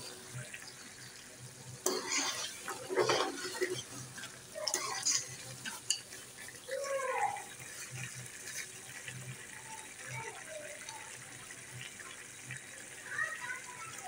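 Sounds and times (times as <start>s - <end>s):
thick curry bubbling: 0.0s - 14.0s
metal spoon scraping pot: 1.8s - 6.1s.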